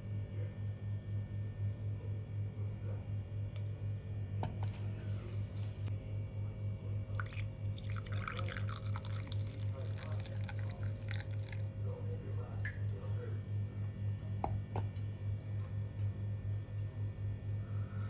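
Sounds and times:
pulsing low hum: 0.0 - 18.0
coffee pouring into a glass: 7.0 - 13.0.

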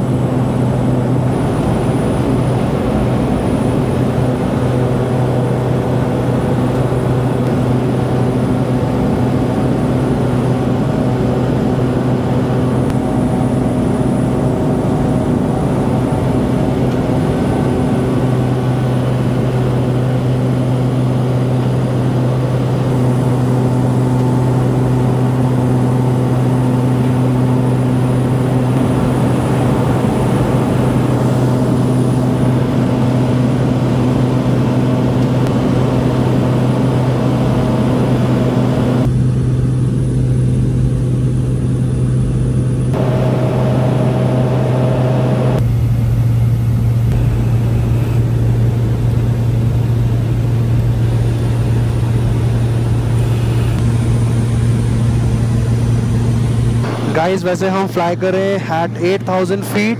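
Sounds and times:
turboprop engine and propeller drone: 0.0 - 59.9
rushing noise: 55.0 - 59.9.

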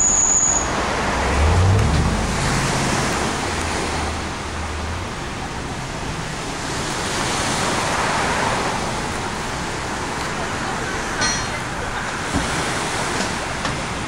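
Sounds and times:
low hum: 0.4 - 5.0
waves washing onto sandy beach: 0.7 - 14.0.

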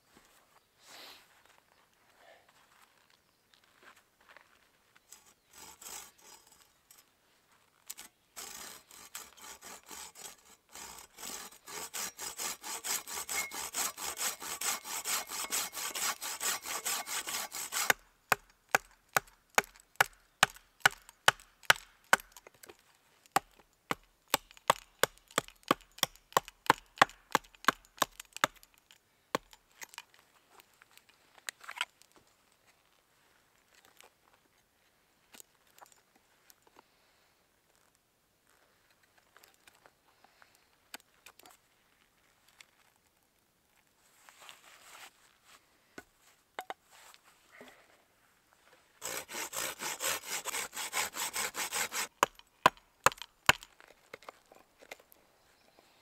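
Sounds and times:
saw cutting through wood: 5.1 - 6.6, 8.0 - 18.9, 49.0 - 53.7
hatchet chopping branch: 11.2 - 22.4, 23.4 - 28.7, 29.4 - 30.0, 49.0 - 53.7.

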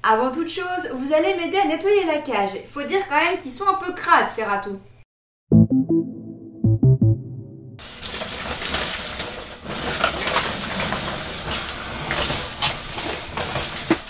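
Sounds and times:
metal wire cage rattling: 7.8 - 14.0.

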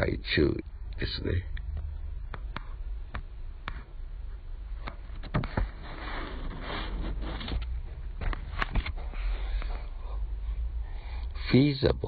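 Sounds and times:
low steady hum: 0.0 - 12.0
soft rustling: 5.4 - 9.9.

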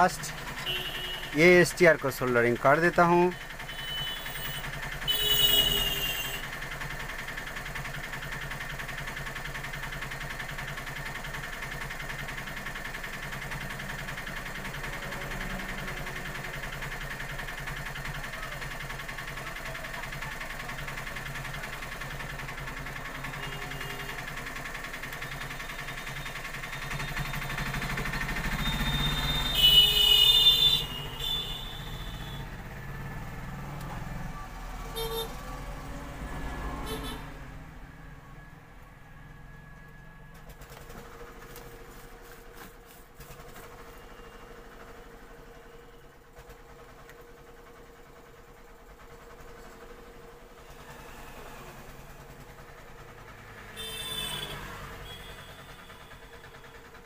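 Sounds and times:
background traffic: 0.0 - 57.0
car horn honking: 0.5 - 1.5, 3.6 - 6.5, 28.5 - 32.5, 34.9 - 35.4, 36.8 - 37.4, 53.7 - 56.4
vehicle approaching: 12.1 - 18.2, 24.2 - 45.7, 46.4 - 57.0.

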